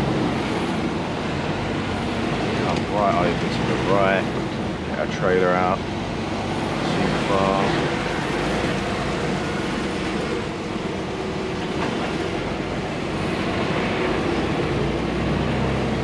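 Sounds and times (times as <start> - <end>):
diesel engine running: 0.0 - 16.0
tyres hissing on wet road: 0.0 - 16.0.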